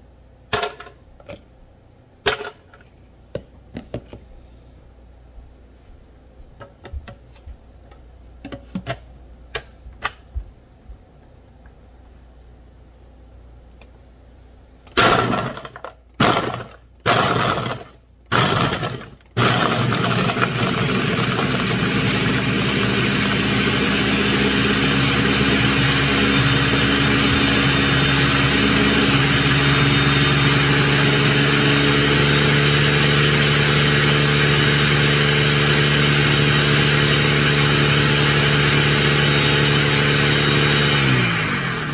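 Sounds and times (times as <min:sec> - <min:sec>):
blender crushing ice: 0:14.9 - 0:41.9.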